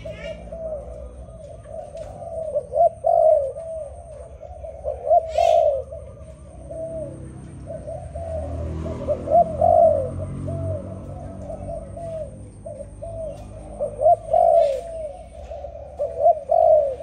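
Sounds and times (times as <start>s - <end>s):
dove cooing: 0.0s - 17.0s
high bird chirp: 11.0s - 17.0s.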